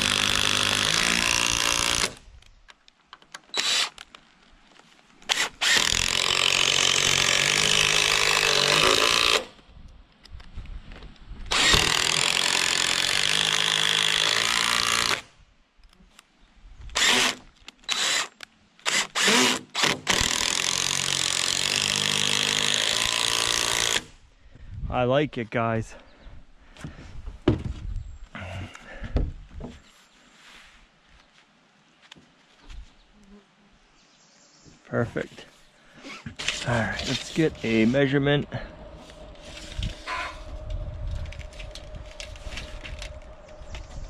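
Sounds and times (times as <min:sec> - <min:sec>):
impact driver driving screws: 0:03.5 - 0:04.0, 0:05.3 - 0:09.5, 0:11.5 - 0:15.3, 0:16.9 - 0:24.2, 0:36.0 - 0:37.4
impact driver trigger bursts: 0:03.5 - 0:04.0, 0:05.3 - 0:09.5, 0:11.5 - 0:15.2, 0:17.0 - 0:24.2.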